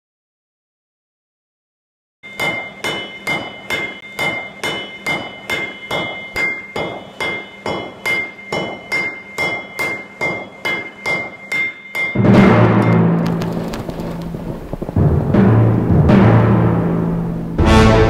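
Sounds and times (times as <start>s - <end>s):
hammer ringing on anvil: 2.2s - 13.1s.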